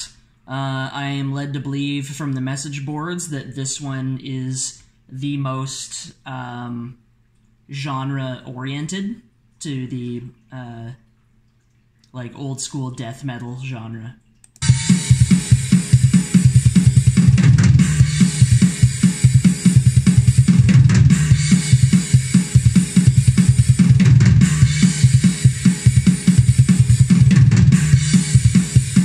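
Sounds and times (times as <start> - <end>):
cymbal wash: 14.6 - 29.0
rapid kick drum: 14.6 - 29.0.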